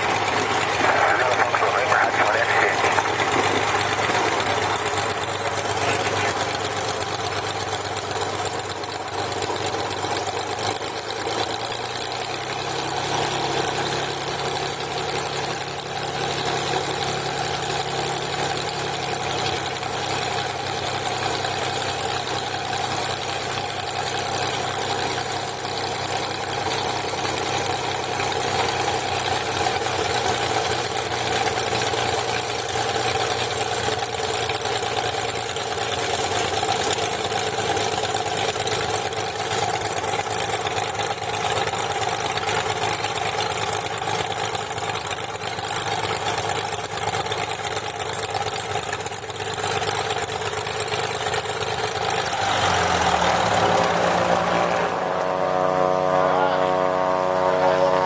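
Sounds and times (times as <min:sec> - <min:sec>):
airplane engine droning: 0:00.0 - 0:12.6, 0:51.2 - 0:58.0.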